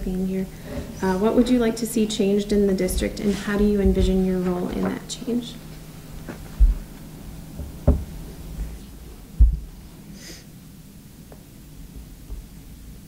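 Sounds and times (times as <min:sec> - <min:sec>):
dull low thumps: 0:02.5 - 0:04.5, 0:06.5 - 0:10.0.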